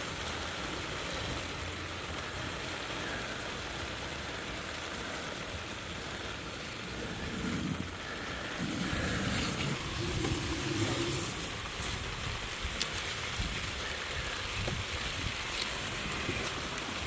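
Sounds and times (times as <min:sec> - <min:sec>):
steady rain falling: 0:00.0 - 0:17.0
low noises: 0:01.4 - 0:17.0.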